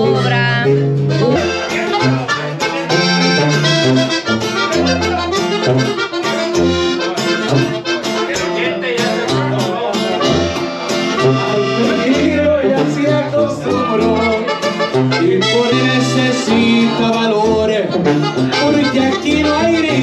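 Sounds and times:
live band playing dance tune: 0.0s - 12.6s
accordion melody: 0.0s - 20.0s.

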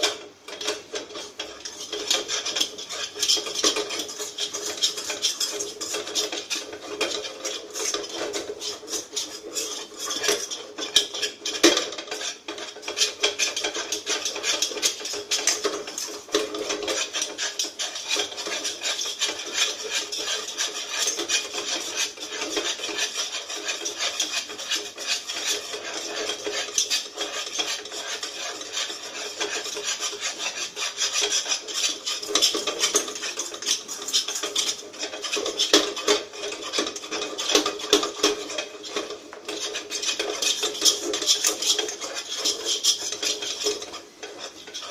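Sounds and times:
spatula scraping a pan: 0.0s - 44.9s.

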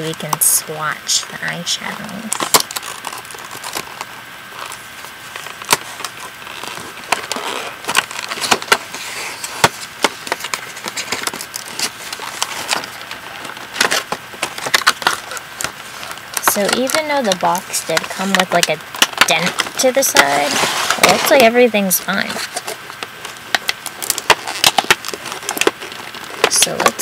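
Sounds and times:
packaging rustling: 2.2s - 27.0s
packaging clicks and snaps: 5.4s - 20.2s, 22.4s - 27.0s.

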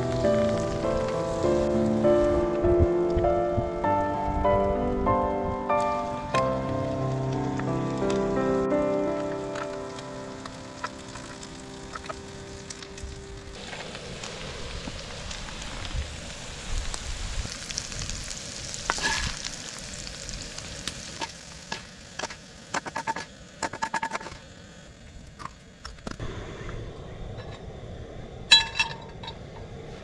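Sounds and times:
food sizzling in a skillet: 10.4s - 24.2s
clinks: 28.5s - 29.6s.

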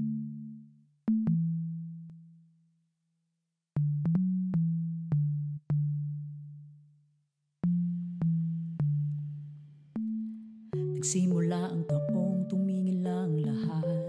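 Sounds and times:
electronic keyboard low notes: 7.6s - 14.0s.

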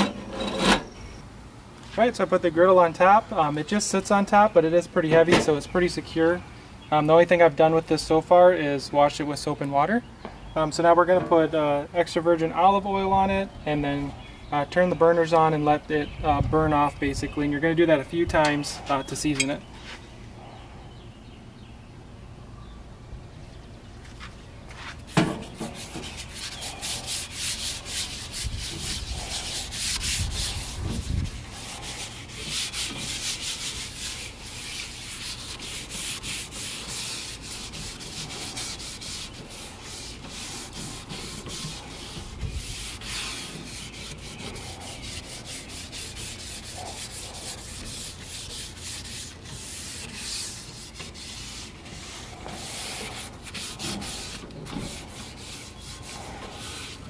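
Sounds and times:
paper towel rubbing on griddle: 24.7s - 57.0s.

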